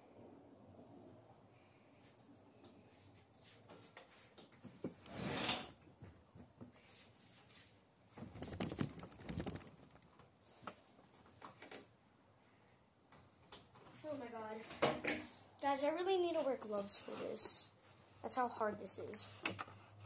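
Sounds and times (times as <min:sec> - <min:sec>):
rustling and scraping: 0:02.8 - 0:05.8, 0:06.7 - 0:11.6, 0:16.1 - 0:18.3.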